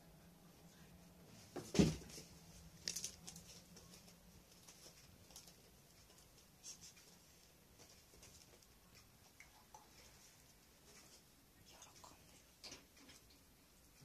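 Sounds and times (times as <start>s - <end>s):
cat landing on wooden floor: 1.6s - 2.2s.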